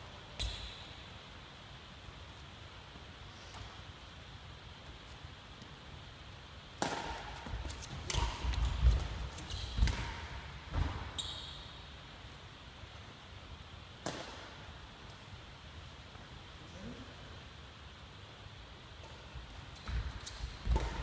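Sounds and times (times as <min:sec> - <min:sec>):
rackets hitting shuttlecock: 0:06.8 - 0:11.2, 0:14.0 - 0:15.2, 0:19.0 - 0:21.0
shoe squeak: 0:11.1 - 0:11.6.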